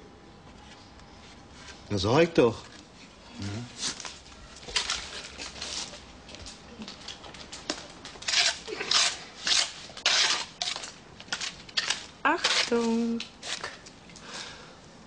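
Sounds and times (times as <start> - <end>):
scraping strokes: 8.2 - 13.8.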